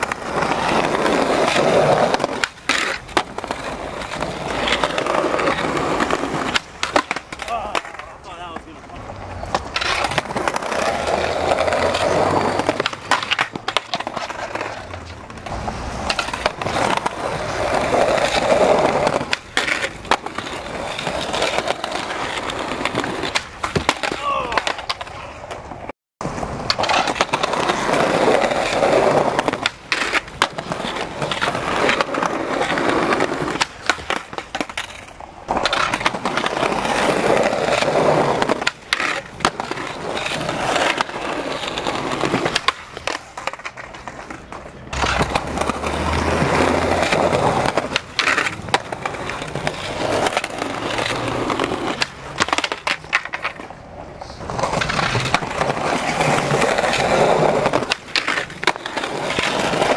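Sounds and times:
skateboards clacking on landing: 0:00.0 - 0:59.9
skateboards rolling on concrete: 0:00.0 - 0:59.9
skateboard tail pops: 0:22.8 - 0:25.3.

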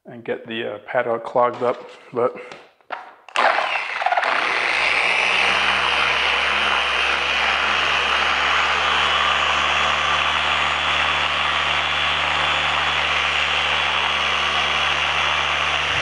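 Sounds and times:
polisher rushing hiss: 0:04.0 - 0:16.0
low motor hum: 0:05.2 - 0:16.0.

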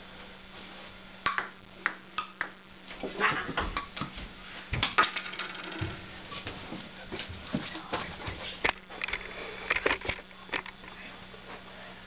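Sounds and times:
ping-pong ball clicking: 0:01.2 - 0:02.6.

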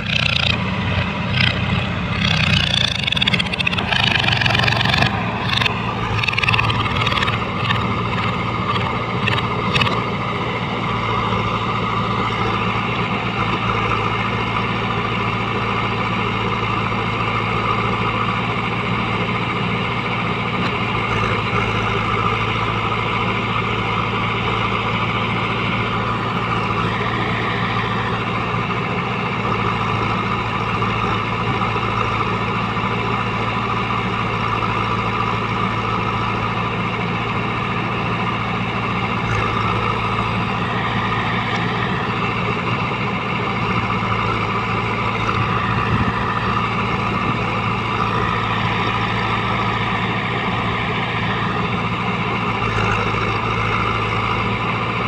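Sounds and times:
diesel engines running: 0:00.0 - 0:55.0.

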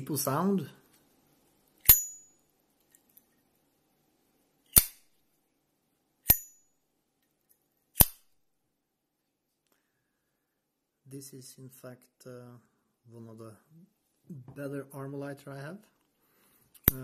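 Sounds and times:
lighter lid metallic ping: 0:01.8 - 0:02.3.

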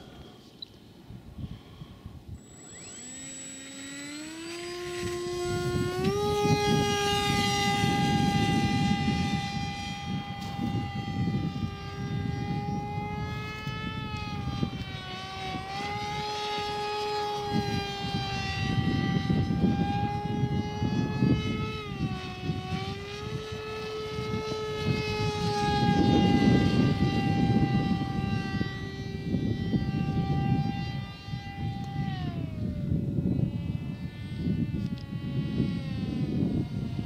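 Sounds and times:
electric motor propeller whining: 0:00.0 - 0:37.0
wind rumble on microphone: 0:00.0 - 0:37.0.

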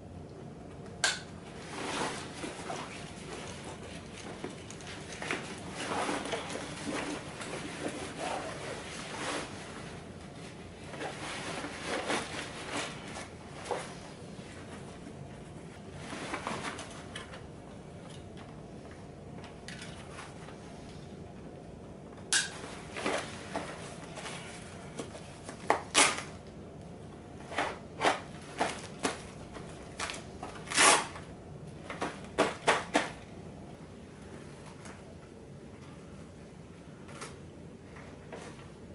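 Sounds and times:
fabric and webbing rustling: 0:01.4 - 0:17.3.

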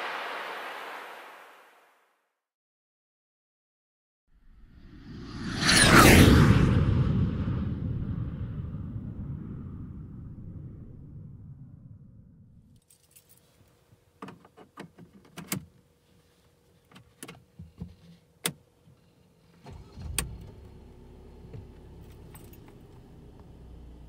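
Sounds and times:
car engine starting and idling: 0:19.5 - 0:24.0.

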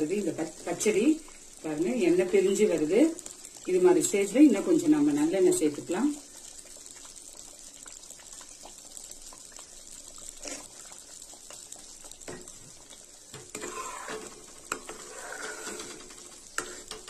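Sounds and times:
gravy bubbling and popping: 0:00.0 - 0:17.0
metal ladle scraping pan: 0:13.4 - 0:17.0.

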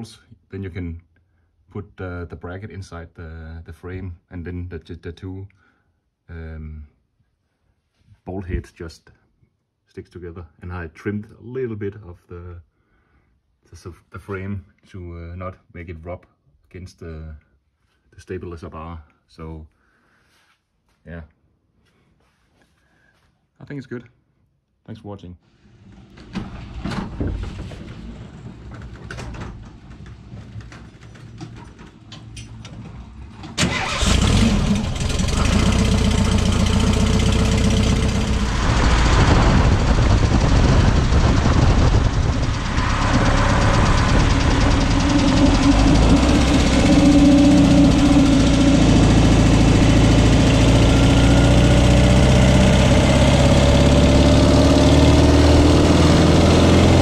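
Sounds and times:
tyre and road noise: 0:26.5 - 0:57.0
van engine running: 0:26.5 - 0:57.0.

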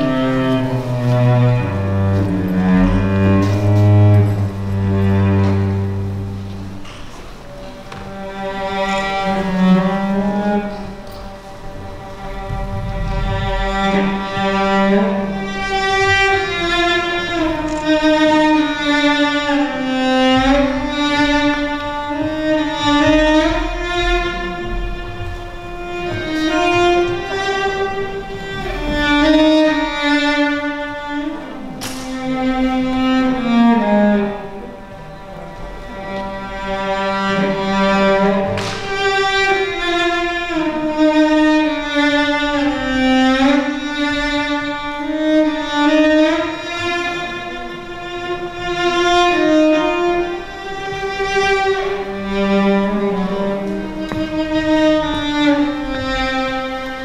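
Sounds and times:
slow bowed-string music: 0:00.0 - 0:57.0
sharp knocks: 0:20.2 - 0:29.3, 0:31.8 - 0:32.4, 0:38.4 - 0:39.2.

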